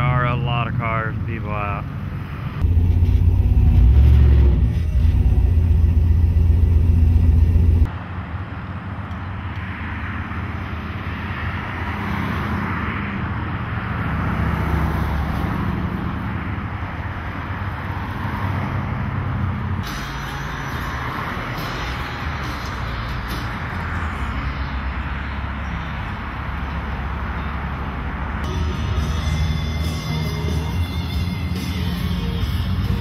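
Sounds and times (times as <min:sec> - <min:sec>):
outdoor street background: 0:00.0 - 0:33.0
car engine rumble from inside cabin: 0:02.6 - 0:07.9.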